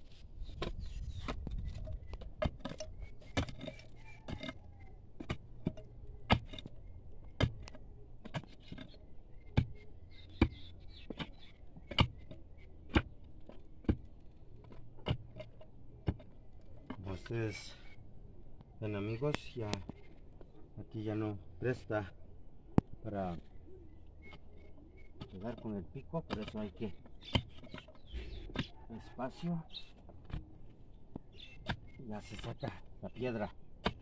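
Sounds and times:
metal tool scraping stones: 0:00.7 - 0:06.8, 0:25.3 - 0:28.8.

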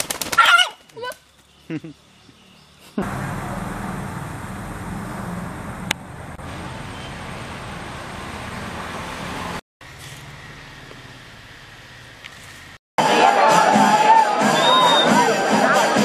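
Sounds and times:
low rumbling traffic-like noise: 0:00.9 - 0:12.8.

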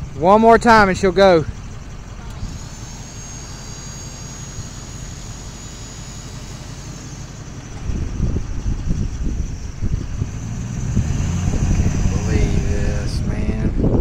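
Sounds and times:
dump truck engine running: 0:00.0 - 0:14.0
thin high whine: 0:00.6 - 0:13.8
hydraulic hoist straining: 0:01.7 - 0:12.7.

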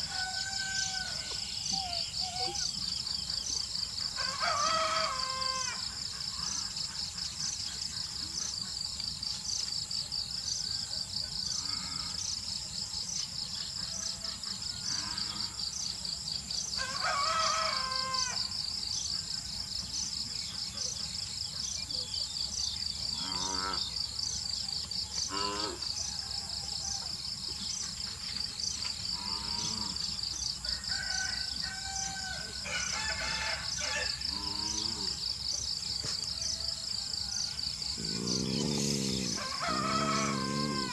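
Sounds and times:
rooster crowing: 0:00.0 - 0:01.4, 0:04.2 - 0:05.8, 0:16.8 - 0:18.4, 0:30.6 - 0:34.4, 0:38.6 - 0:40.9
insects trilling: 0:00.0 - 0:40.9.

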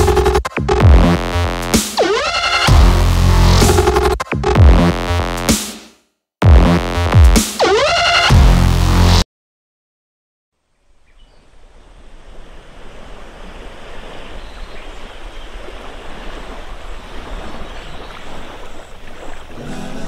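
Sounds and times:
sea washing against shore: 0:11.6 - 0:20.0.

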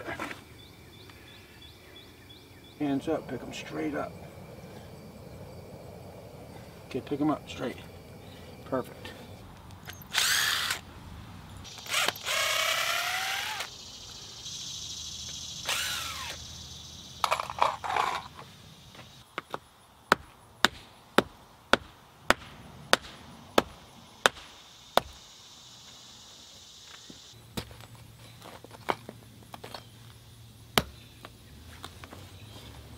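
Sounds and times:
insects chirring: 0:00.0 - 0:32.9
cordless drill whirring: 0:10.1 - 0:10.8, 0:11.7 - 0:13.7, 0:15.6 - 0:16.4
hammer knocking on stakes: 0:19.4 - 0:25.2.

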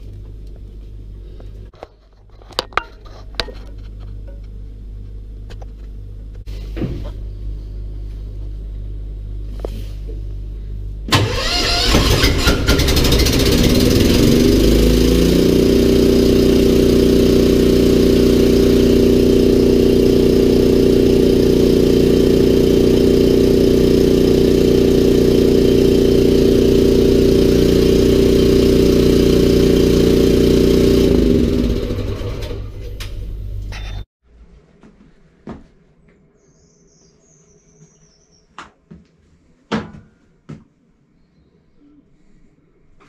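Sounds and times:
air compressor engine running: 0:11.0 - 0:33.8.

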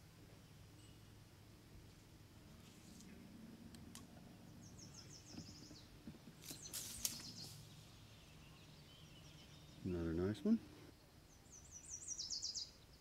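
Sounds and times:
low steady hum: 0:00.0 - 0:13.0
songbird trilling: 0:06.5 - 0:10.3, 0:11.3 - 0:12.9.

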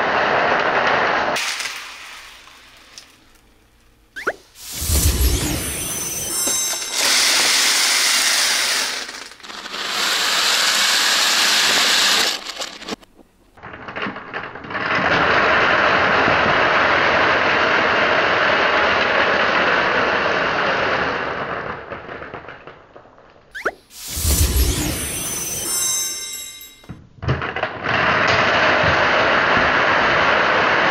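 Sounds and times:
plastic beads pouring and scattering: 0:04.6 - 0:13.0.

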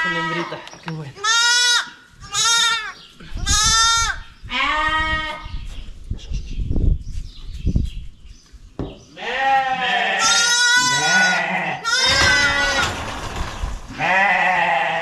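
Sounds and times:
sheep bleating: 0:00.0 - 0:05.5, 0:09.2 - 0:12.9, 0:13.9 - 0:15.0.

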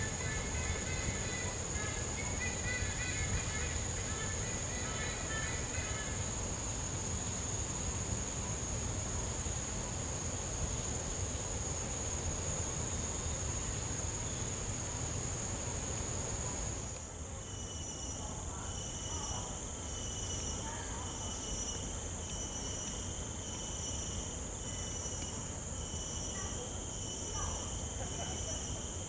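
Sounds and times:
insects chorus: 0:00.0 - 0:29.0.

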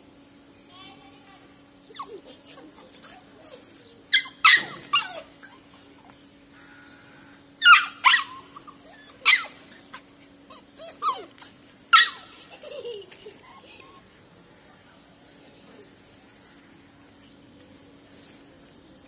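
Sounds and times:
puppy yelping and whimpering: 0:01.8 - 0:06.2, 0:07.4 - 0:14.1.

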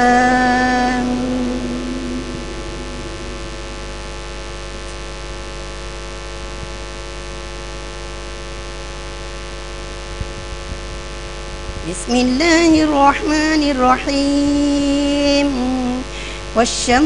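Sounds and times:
echo of a voice: 0:00.0 - 0:05.2
electrical mains hum and hiss: 0:00.0 - 0:17.0.

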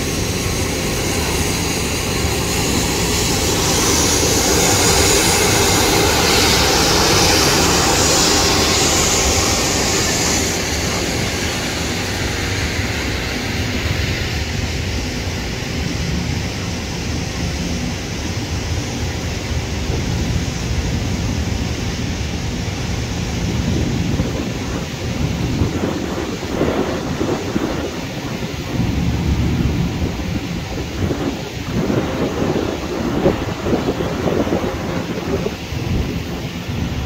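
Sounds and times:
jet engines rumbling: 0:00.0 - 0:37.0
wind buffeting microphone: 0:00.0 - 0:37.0.

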